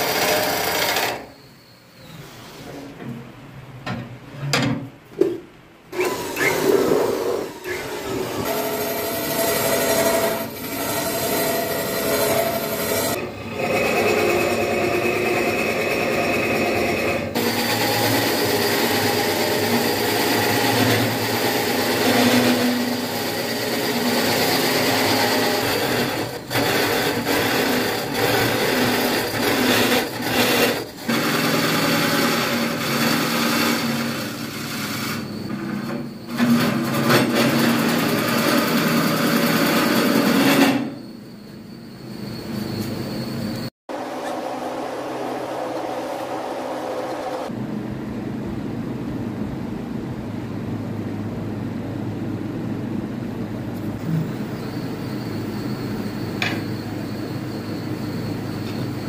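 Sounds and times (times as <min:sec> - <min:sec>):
turning tool scraping wood: 0:08.4 - 0:41.0
lathe motor running: 0:17.4 - 0:35.2.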